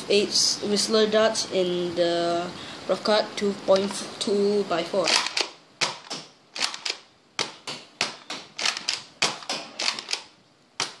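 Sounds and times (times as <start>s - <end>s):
toy blaster plastic clacks and pops: 5.1s - 7.0s, 8.6s - 10.3s.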